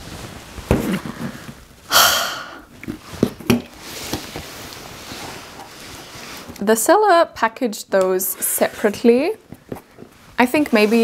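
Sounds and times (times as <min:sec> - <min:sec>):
cardboard flaps rustling: 0:00.0 - 0:01.7
box thumping down: 0:00.6 - 0:01.3
cardboard scraping rustle: 0:02.9 - 0:06.6, 0:08.3 - 0:11.0.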